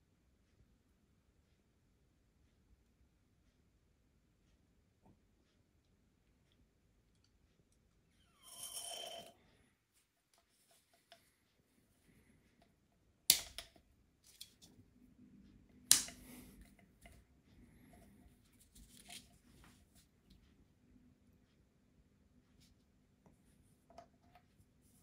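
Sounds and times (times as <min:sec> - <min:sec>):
sharp clicks of small parts: 0:15.9 - 0:16.3.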